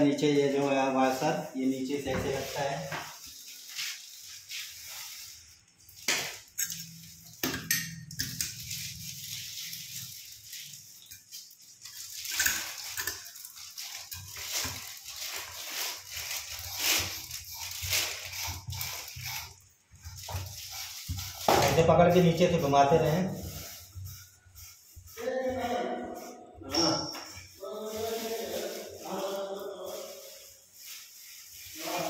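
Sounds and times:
sink strainer clicks and scrapes: 0:11.0 - 0:15.0.

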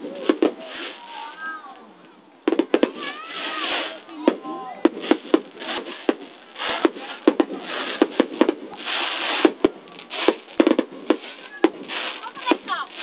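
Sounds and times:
fireworks hiss: 0:00.0 - 0:01.6, 0:02.4 - 0:13.0
fireworks bangs: 0:00.0 - 0:01.8, 0:02.4 - 0:13.0.

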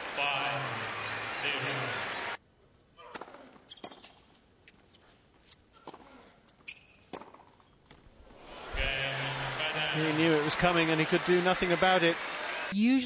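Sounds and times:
crowd noise: 0:00.0 - 0:02.4, 0:08.3 - 0:13.0
tennis ball bouncing: 0:07.0 - 0:07.6.

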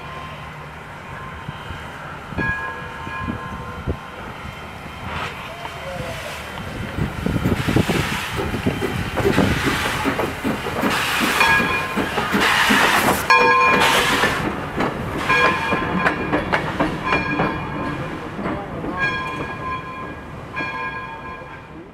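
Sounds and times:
steam locomotive chuffing: 0:00.0 - 0:21.9
wheels clicking over rails: 0:06.5 - 0:21.3.

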